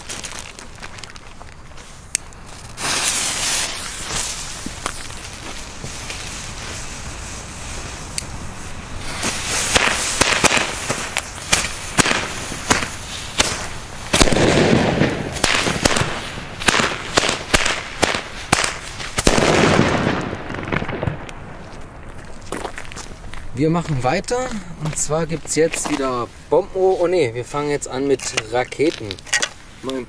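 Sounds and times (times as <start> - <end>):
firecrackers banging: 2.2 - 26.2
fuse hissing: 2.5 - 14.1.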